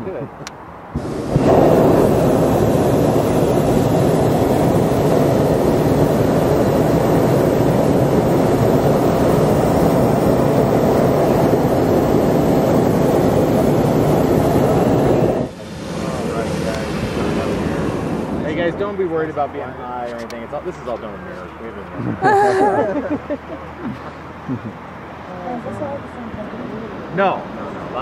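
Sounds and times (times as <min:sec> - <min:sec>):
propane burner firing: 0:00.9 - 0:22.6.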